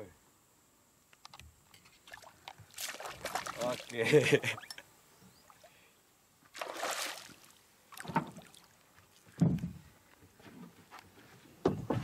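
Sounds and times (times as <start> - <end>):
fish splashing and thrashing in water: 2.0 - 4.0, 6.5 - 8.8.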